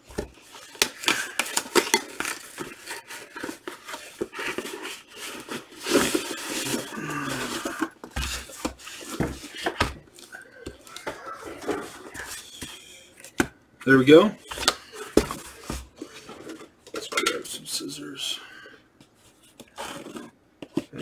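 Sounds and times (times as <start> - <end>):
cardboard crackling and rustling: 0.0 - 12.6
box pulled out of cardboard box: 2.3 - 9.8.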